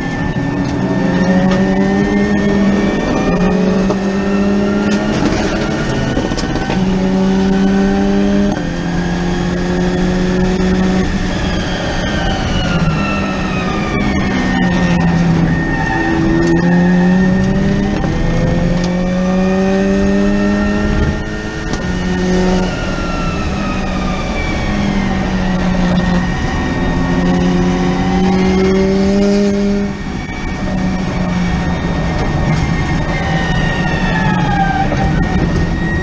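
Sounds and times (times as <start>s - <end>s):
electric drivetrain whine: 0.0s - 36.0s
wind and tyre noise: 0.0s - 36.0s.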